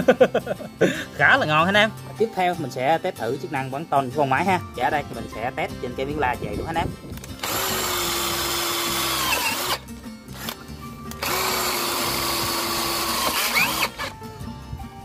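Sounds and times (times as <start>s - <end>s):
cordless drill driving screws into steel: 7.2s - 14.2s.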